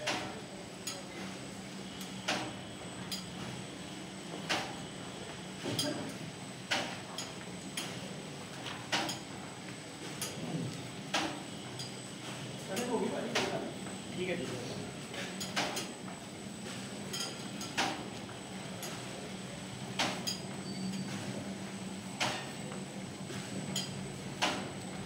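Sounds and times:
sharp clack of cutter: 24.4 - 24.7.

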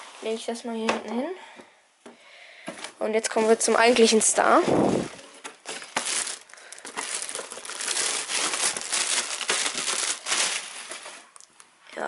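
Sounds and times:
plastic bag crinkling: 3.3 - 11.5.

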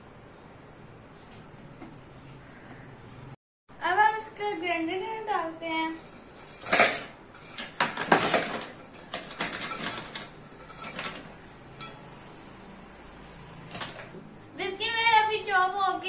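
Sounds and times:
biscuits clattering into plastic bowl: 6.5 - 11.4.

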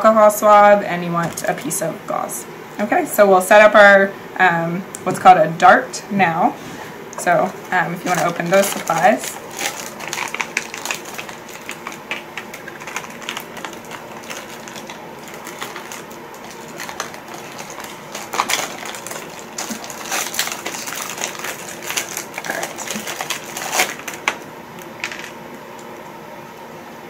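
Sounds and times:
crinkling of peel packs: 7.4 - 25.4
loud wrapper crackles: 8.0 - 25.4.

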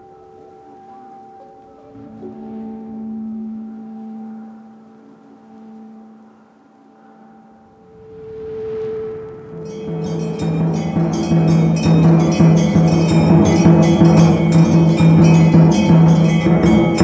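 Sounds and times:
steady low tone: 0.0 - 17.0
metal bell clanging: 9.6 - 17.0.

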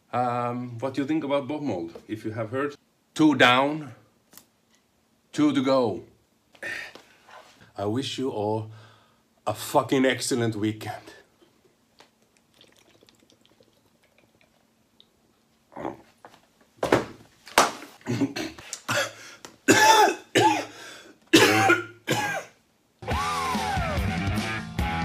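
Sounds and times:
man coughing and spluttering: 18.0 - 22.6
rock music: 23.0 - 25.0.

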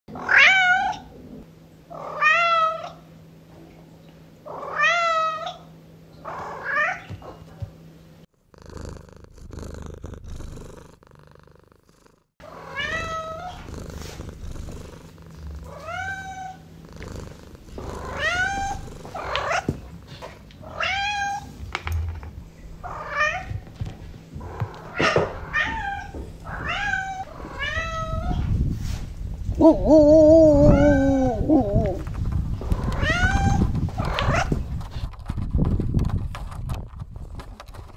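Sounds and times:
cat purring: 8.3 - 20.2
cat meowing: 12.5 - 13.6, 29.8 - 32.0, 32.8 - 34.5.

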